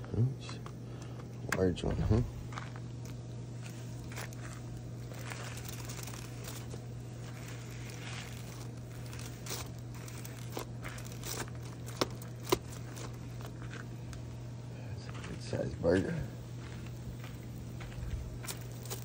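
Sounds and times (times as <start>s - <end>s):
steady low hum: 0.0s - 19.0s
aluminium foil crinkling: 2.4s - 14.2s, 18.3s - 19.0s.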